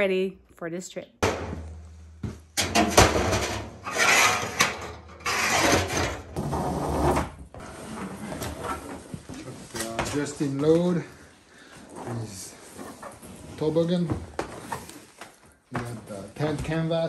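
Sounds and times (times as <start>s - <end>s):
metal knocks and clanks: 1.2s - 6.4s.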